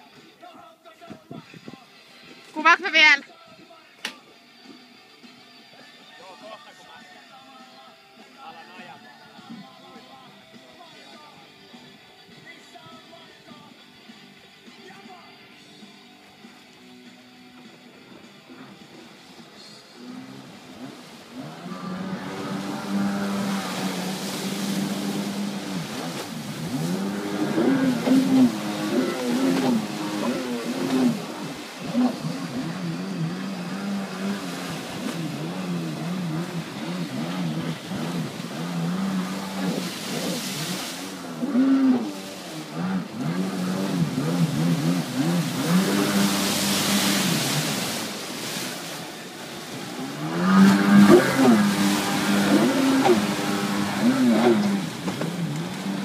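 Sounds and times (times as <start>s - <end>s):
jet ski engine revving: 17.1s - 56.0s
water spray hiss: 39.3s - 41.2s, 43.8s - 49.0s.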